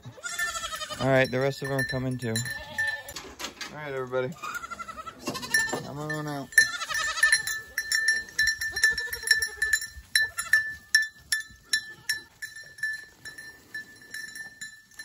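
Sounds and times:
goats bleating: 0:00.0 - 0:01.3, 0:02.4 - 0:03.2, 0:04.3 - 0:10.8, 0:11.6 - 0:12.4
hooves clicking: 0:00.0 - 0:15.0
light jingling: 0:00.2 - 0:15.0.

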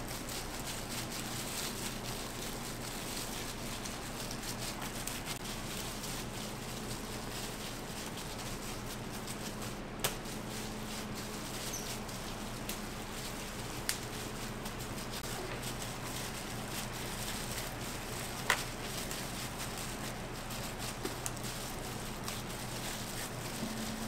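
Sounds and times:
kitchen hum: 0:00.0 - 0:24.0
small clicks and crackles: 0:00.0 - 0:24.0.

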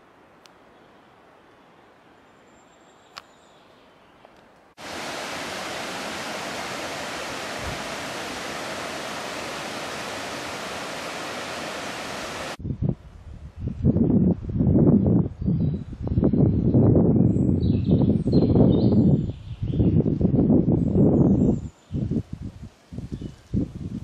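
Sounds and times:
small click: 0:03.1 - 0:03.3
rushing river water: 0:04.8 - 0:12.6.

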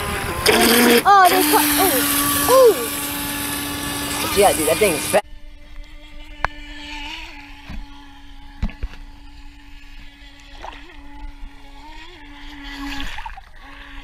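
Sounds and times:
electric motor whining: 0:00.0 - 0:14.0.

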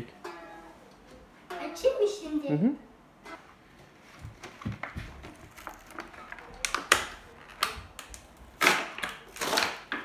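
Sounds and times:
plastic packaging crinkling: 0:04.8 - 0:10.0.

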